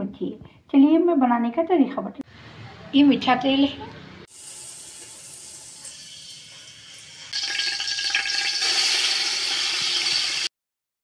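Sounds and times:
hot oil sizzling: 4.3 - 10.5.

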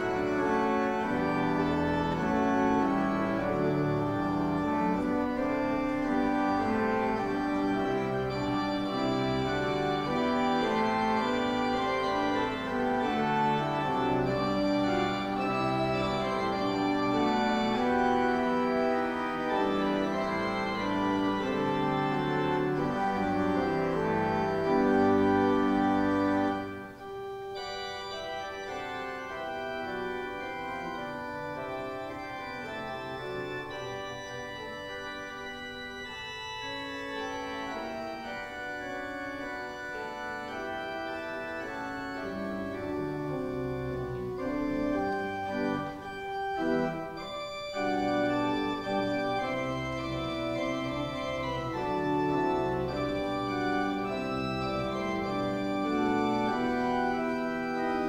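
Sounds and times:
organ playing chords: 0.0 - 58.0.

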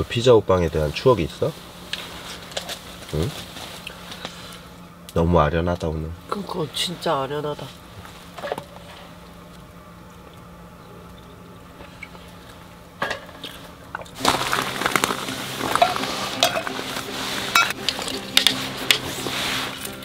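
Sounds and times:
low hum: 0.9 - 20.0
metal camping gear clinking: 14.1 - 20.0.

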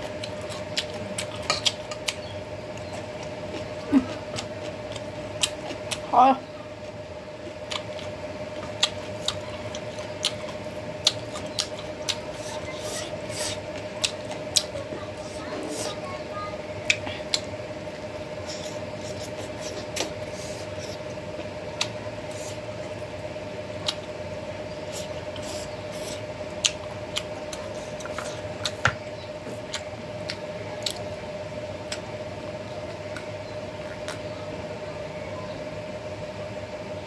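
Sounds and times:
chewing with wet mouth clicks: 0.0 - 6.1, 6.8 - 12.6, 13.3 - 14.8, 16.8 - 17.5, 18.4 - 22.6, 23.8 - 24.2, 24.9 - 31.1, 31.8 - 32.1, 33.0 - 34.2
steady hum: 0.0 - 37.0.

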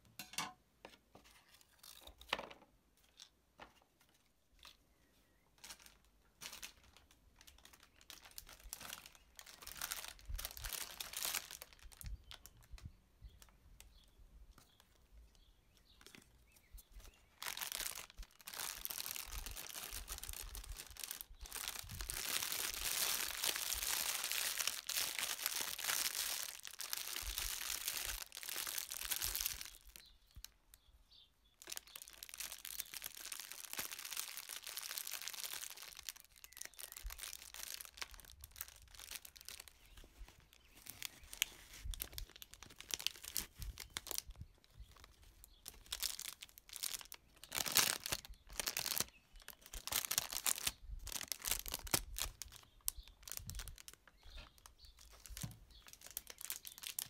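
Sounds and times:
cellophane wrap crinkling: 5.6 - 13.6, 15.9 - 30.8, 31.6 - 57.0.

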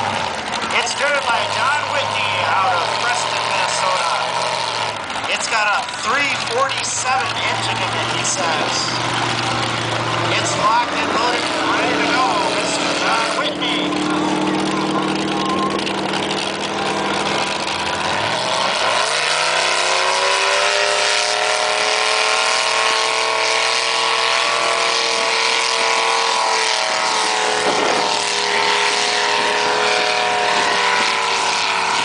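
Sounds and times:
engine idling and revving: 0.0 - 32.0.

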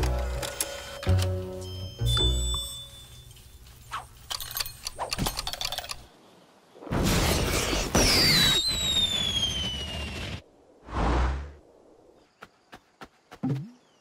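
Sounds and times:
high whistle gliding downward: 8.2 - 10.4.

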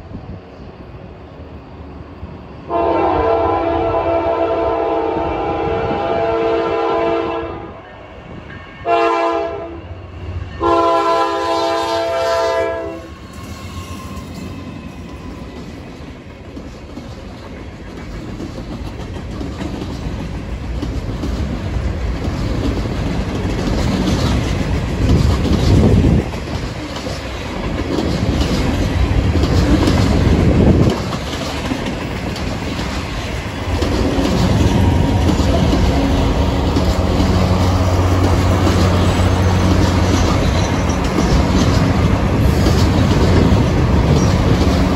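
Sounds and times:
locomotive horn blasts: 2.7 - 7.8, 8.8 - 10.0, 10.6 - 13.2
train wheels clacking over rail joints: 13.2 - 44.9.

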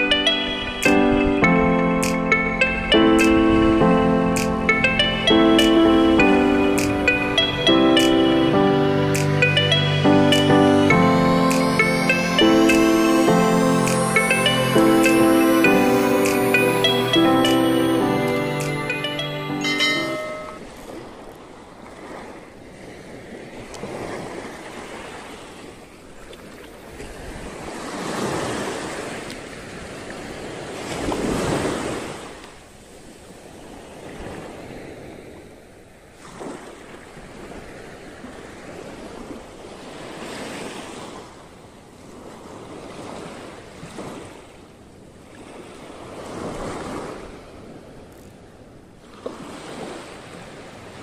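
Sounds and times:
small waves washing on sand: 20.6 - 51.0.

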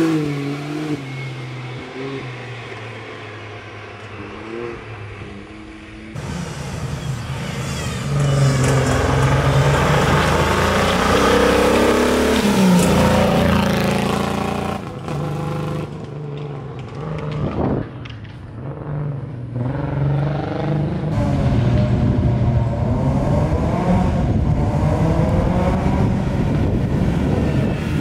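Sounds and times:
rally car engine revving: 0.0 - 2.8, 4.0 - 28.0.

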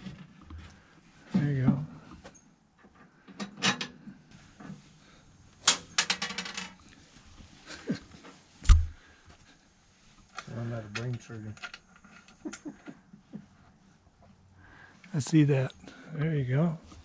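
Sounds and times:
dull thump: 8.6 - 9.0.

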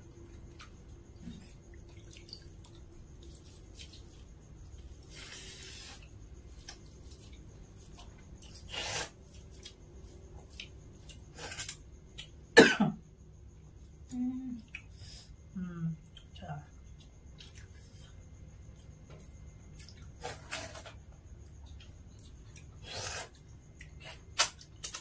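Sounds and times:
people eating with fingers: 0.2 - 12.4, 13.8 - 15.3, 15.9 - 25.0
short cough: 12.6 - 13.0.

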